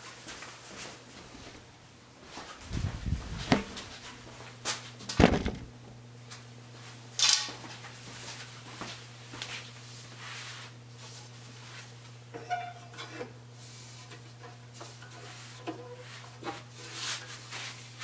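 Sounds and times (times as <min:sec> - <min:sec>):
steady low hum: 0:00.4 - 0:15.3
camera handling thumps and knocks: 0:05.2 - 0:05.7.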